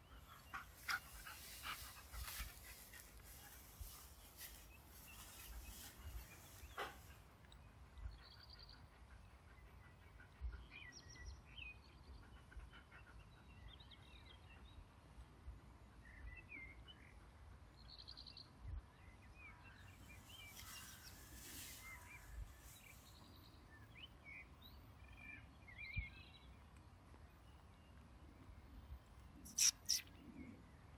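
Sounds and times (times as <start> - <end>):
birds chirping: 0.0 - 7.3, 19.6 - 30.6.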